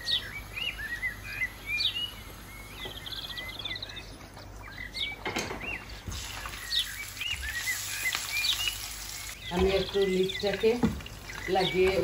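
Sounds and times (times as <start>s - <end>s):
small bird chirping: 0.0s - 12.0s
hot oil sizzling: 5.9s - 12.0s.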